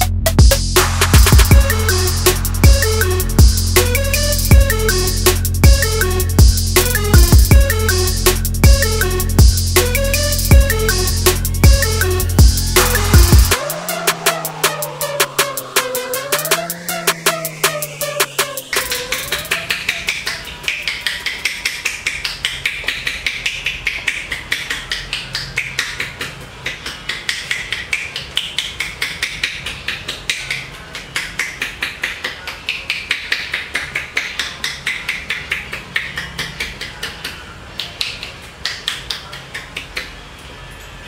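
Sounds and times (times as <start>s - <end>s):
rapid even tapping: 0.0s - 27.9s.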